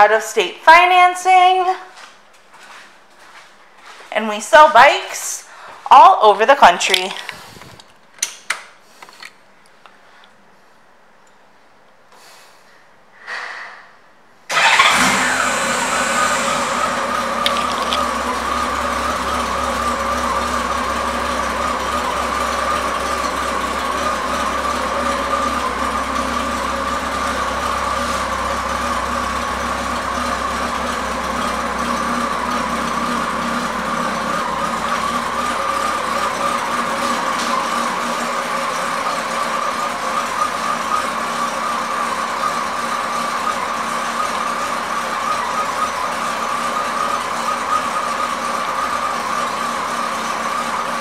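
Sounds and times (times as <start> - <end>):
motorcycle engine starting and idling: 14.5 - 51.0.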